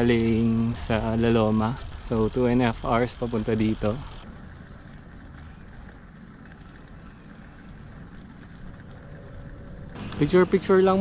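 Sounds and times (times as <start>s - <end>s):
insects trilling: 0.0s - 11.0s.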